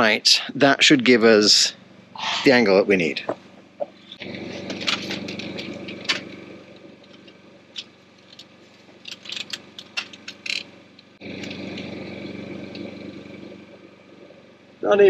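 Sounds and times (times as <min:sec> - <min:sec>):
motor hum: 0:00.6 - 0:15.0
clicks and knocks of tools: 0:07.1 - 0:10.7.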